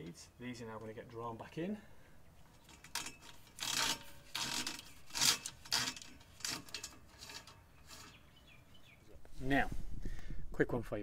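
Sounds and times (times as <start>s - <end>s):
cables scraping through a tube: 2.6s - 8.4s.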